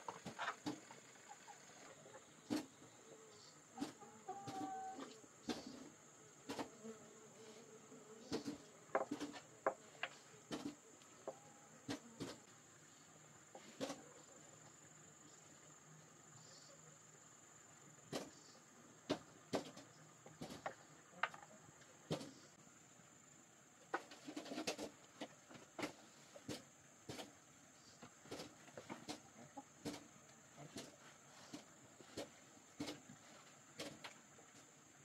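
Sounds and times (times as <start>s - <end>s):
chickens clucking: 0.0s - 6.7s, 8.2s - 15.4s, 23.8s - 34.7s.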